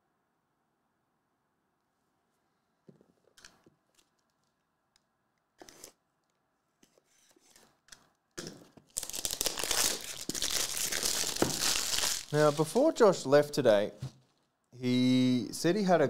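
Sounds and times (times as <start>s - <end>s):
plastic wrap crinkling and tearing: 8.9s - 13.0s.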